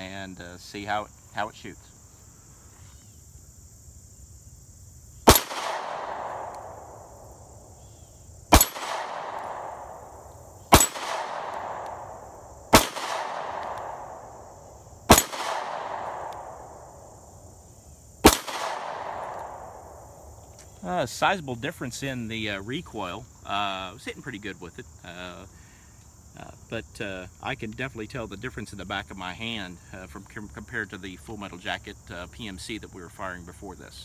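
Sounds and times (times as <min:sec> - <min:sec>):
crickets chirring: 0:00.0 - 0:34.0
pistol shots with echo: 0:05.3 - 0:07.2, 0:08.5 - 0:14.4, 0:15.1 - 0:16.9, 0:18.2 - 0:20.0.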